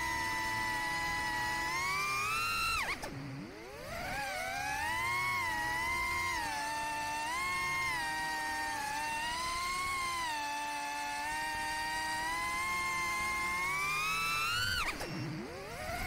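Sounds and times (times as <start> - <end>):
quadcopter motors whining: 0.0 - 16.0.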